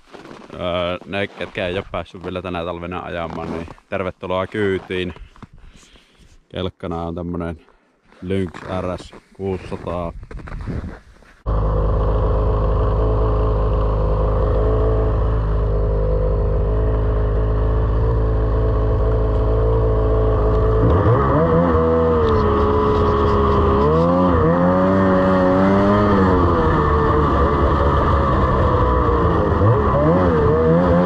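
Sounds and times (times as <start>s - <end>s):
snowmobile engine revving: 11.5s - 31.0s.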